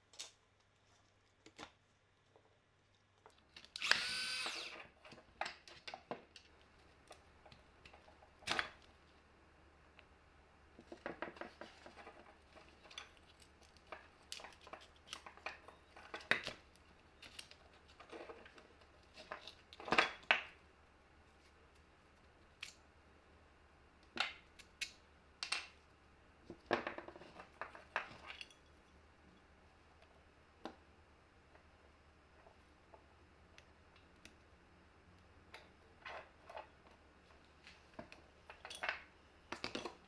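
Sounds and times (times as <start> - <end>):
plastic parts clicking and knocking: 10.8 - 20.6, 35.5 - 40.0.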